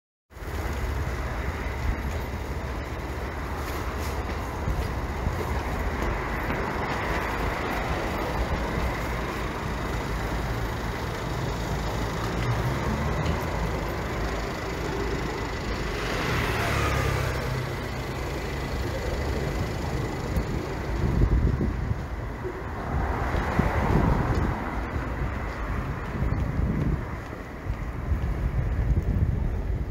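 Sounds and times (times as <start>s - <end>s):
low rumble of road traffic: 0.3s - 29.9s
vehicle passing close by: 5.4s - 22.0s, 22.6s - 26.6s.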